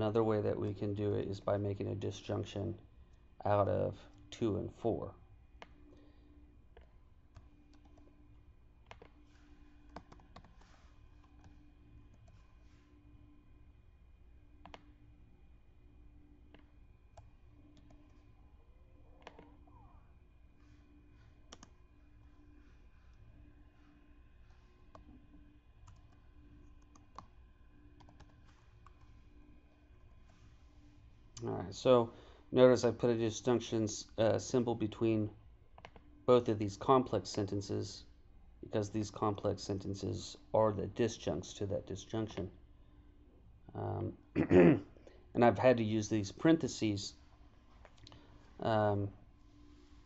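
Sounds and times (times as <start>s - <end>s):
low steady hum: 0.0s - 50.0s
keyboard and mouse clicks: 8.8s - 9.1s, 9.9s - 10.6s, 14.6s - 14.9s, 35.8s - 36.0s.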